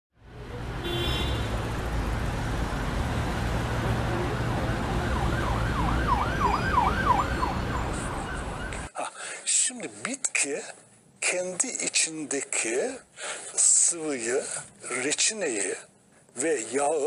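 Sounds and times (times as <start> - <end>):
city traffic rumble: 0.2 - 8.9
emergency vehicle siren yelping: 3.8 - 8.9.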